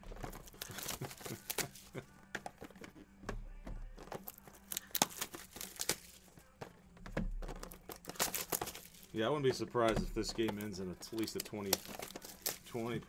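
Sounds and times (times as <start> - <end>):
plastic shrink-wrap tearing: 0.0 - 2.0, 4.1 - 6.3, 7.5 - 9.2, 11.0 - 13.0
cardboard being handled: 0.0 - 13.0.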